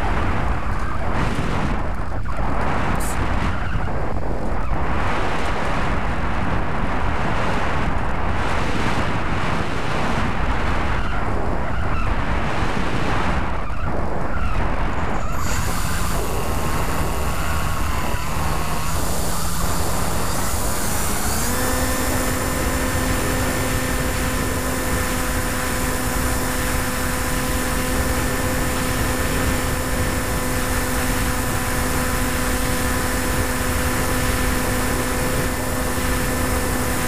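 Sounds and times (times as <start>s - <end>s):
wind buffeting microphone: 0.0s - 37.0s
electric motor whining: 15.1s - 37.0s.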